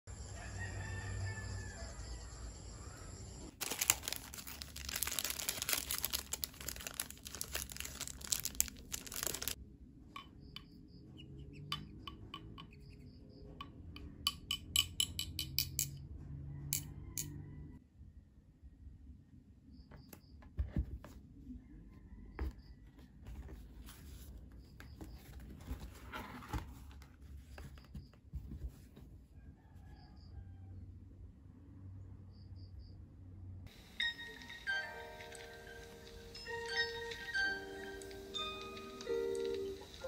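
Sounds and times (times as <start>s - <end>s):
plastic sleeves crinkling: 3.5s - 9.6s.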